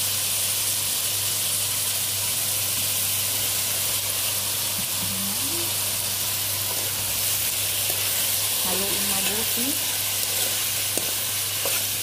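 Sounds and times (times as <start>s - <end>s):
eggplant sizzling in hot oil: 0.0s - 12.0s.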